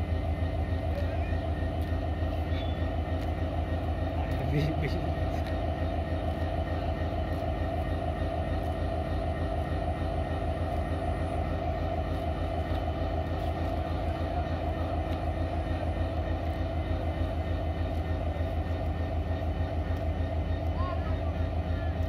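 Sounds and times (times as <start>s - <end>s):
locomotive engine idling: 0.0s - 22.0s.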